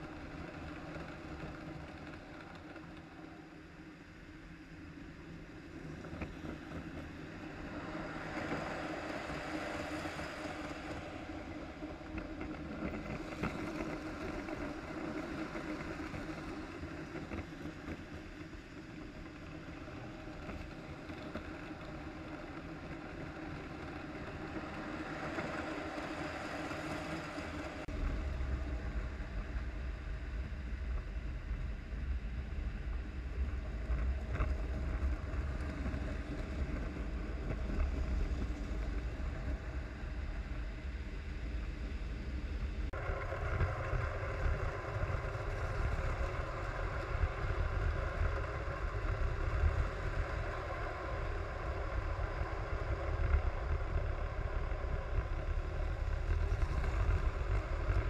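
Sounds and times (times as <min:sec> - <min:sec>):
toy trains rumbling on track: 0:00.0 - 0:30.7, 0:43.0 - 0:58.0.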